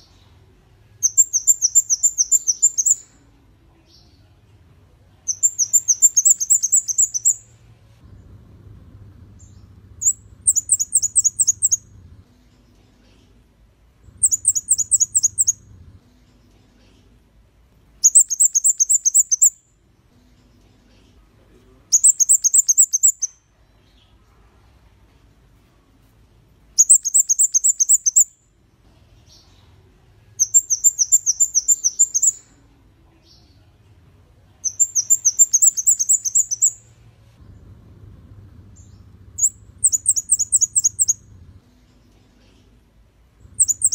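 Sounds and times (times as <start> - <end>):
bird singing high notes: 5.3 - 7.5, 9.4 - 11.9, 14.2 - 15.7, 34.6 - 36.8, 38.8 - 41.3, 43.5 - 43.9.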